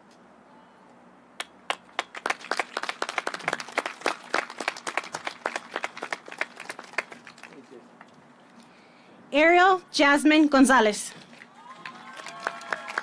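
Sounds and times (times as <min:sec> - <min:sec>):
people clapping: 0:01.4 - 0:08.1, 0:11.4 - 0:13.0.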